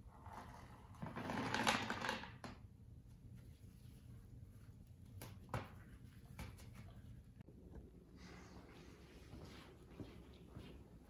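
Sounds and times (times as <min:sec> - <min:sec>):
low room hum: 0:00.0 - 0:11.0.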